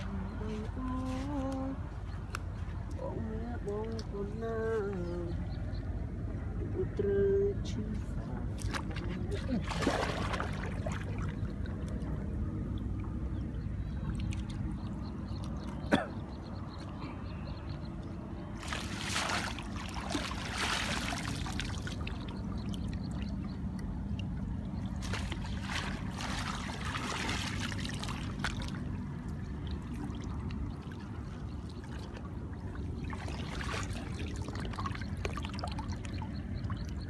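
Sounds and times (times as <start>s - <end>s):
water splashing and trickling: 7.6s - 37.0s.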